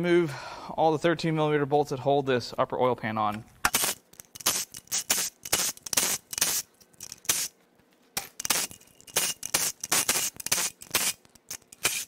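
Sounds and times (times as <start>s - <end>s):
ratchet clicking: 3.7s - 7.5s, 8.2s - 12.0s.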